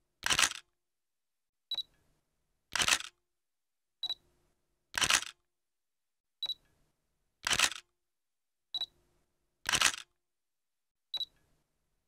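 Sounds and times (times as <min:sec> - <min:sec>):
camera shutter click: 0:00.2 - 0:00.6, 0:02.7 - 0:03.2, 0:05.0 - 0:05.4, 0:07.4 - 0:07.8, 0:09.7 - 0:10.1.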